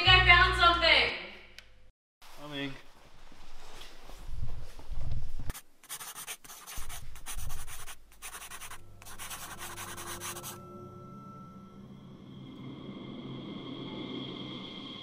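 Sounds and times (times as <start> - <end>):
scratching rubbing noise: 5.5 - 10.6.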